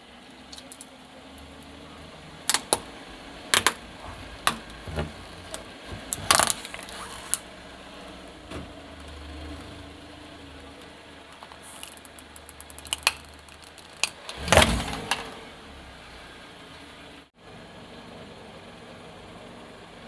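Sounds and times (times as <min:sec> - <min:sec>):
car engine running: 0:00.0 - 0:20.0
plastic cracking and snapping: 0:02.5 - 0:02.9, 0:04.5 - 0:07.4, 0:11.4 - 0:15.3.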